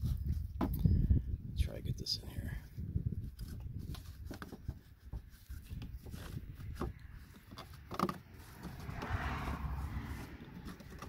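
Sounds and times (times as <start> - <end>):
air filter scraping and rustling: 3.2 - 11.0.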